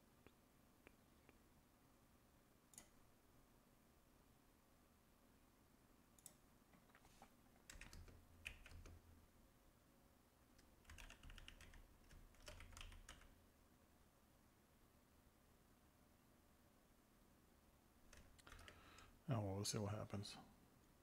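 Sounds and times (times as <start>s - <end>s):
keyboard typing: 7.6s - 9.0s, 10.6s - 13.4s, 18.1s - 19.1s.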